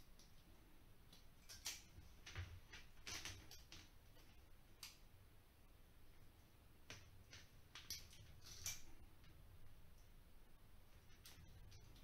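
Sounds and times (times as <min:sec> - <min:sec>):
wire strippers clicking and snipping: 0:01.1 - 0:05.1, 0:06.8 - 0:09.4, 0:11.0 - 0:12.0.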